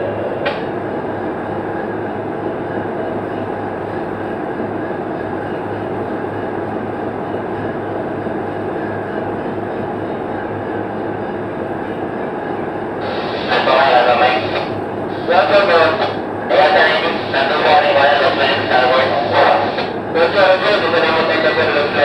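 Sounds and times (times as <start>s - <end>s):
diesel engines droning: 13.0s - 22.0s.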